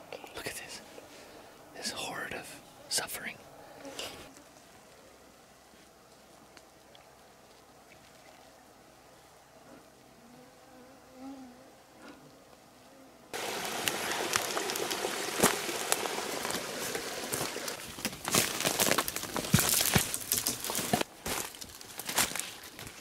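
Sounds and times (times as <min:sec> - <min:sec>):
footsteps through brush: 0:13.4 - 0:23.0
twigs rustling and snapping: 0:13.5 - 0:23.0.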